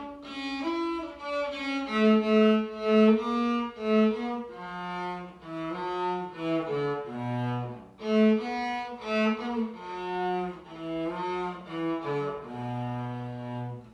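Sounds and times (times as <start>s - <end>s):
bowed cello melody: 0.0s - 13.9s.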